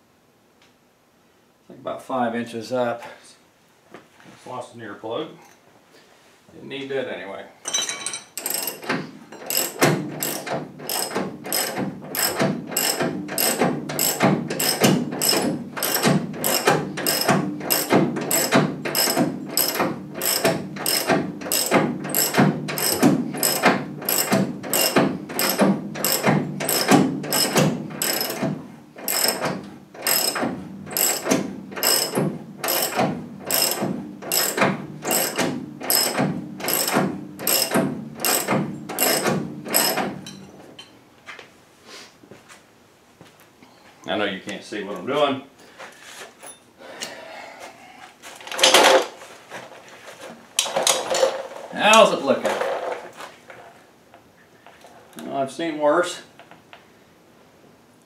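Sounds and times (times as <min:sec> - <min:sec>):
ratchet wrench clicking: 0:08.4 - 0:28.4, 0:29.0 - 0:40.0.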